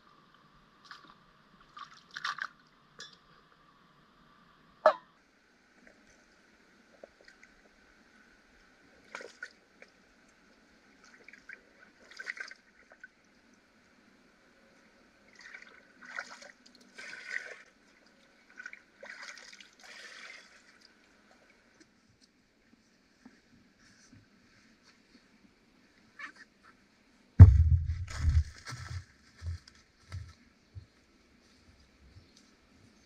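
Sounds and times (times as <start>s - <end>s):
water gurgling and sloshing: 8.8s - 13.8s, 15.1s - 22.0s.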